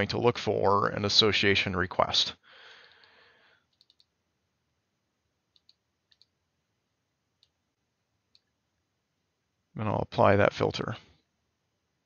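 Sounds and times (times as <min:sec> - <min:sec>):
computer mouse clicks: 0:02.8 - 0:04.1, 0:05.5 - 0:06.4.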